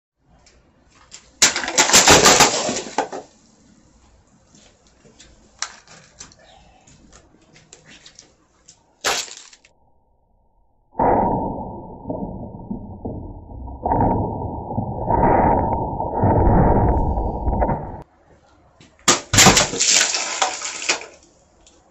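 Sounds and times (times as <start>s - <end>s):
plastic bottles bursting: 1.4s - 3.4s, 9.0s - 9.7s, 19.1s - 21.2s
deep muffled rush of noise: 11.0s - 18.0s.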